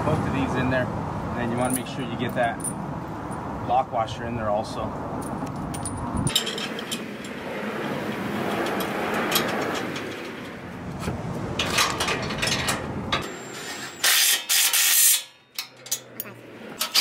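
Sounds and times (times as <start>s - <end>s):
small metal clinks: 5.2s - 7.4s.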